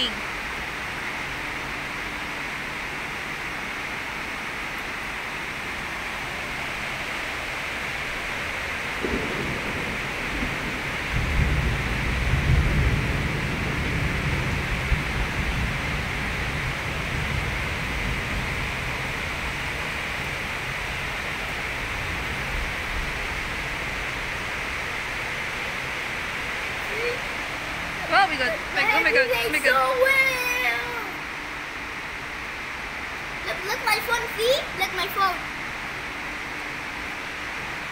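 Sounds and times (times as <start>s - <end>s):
heavy rain: 0.0s - 37.9s
thunder rumbling: 7.3s - 31.3s.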